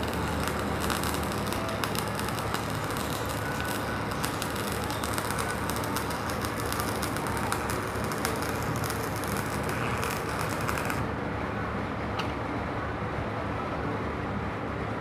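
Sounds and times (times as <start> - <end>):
welding arc crackling: 0.0 - 11.1.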